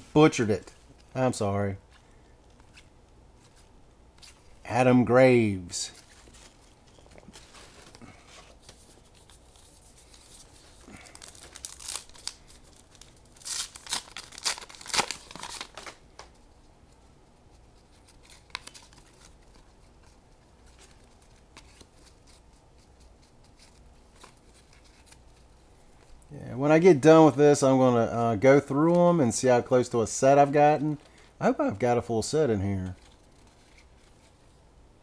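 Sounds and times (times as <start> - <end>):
cards rustling: 5.7 - 16.4, 17.8 - 26.2, 31.9 - 34.5
foil wrapper tearing and crinkling: 10.8 - 16.0.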